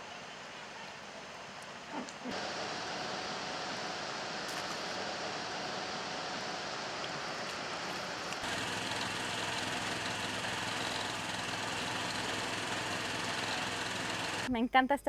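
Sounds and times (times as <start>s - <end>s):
steady background hiss: 0.0s - 12.0s
engine running steadily: 2.0s - 14.5s.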